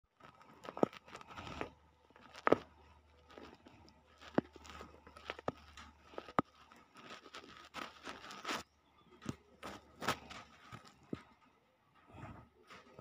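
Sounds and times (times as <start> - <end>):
fabric rustling: 0.1 - 8.7.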